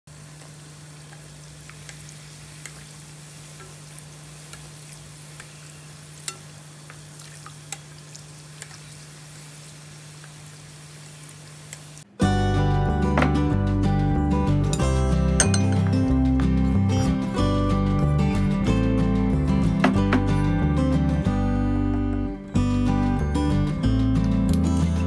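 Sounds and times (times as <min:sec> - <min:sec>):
food sizzling in hot oil: 0:00.1 - 0:12.0
oil crackling and popping: 0:00.1 - 0:12.1.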